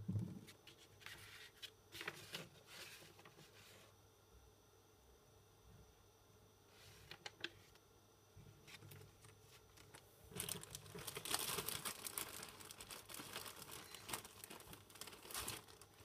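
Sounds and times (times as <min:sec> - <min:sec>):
paper crinkling and rustling: 0:00.6 - 0:03.8, 0:06.8 - 0:07.8, 0:08.6 - 0:16.0.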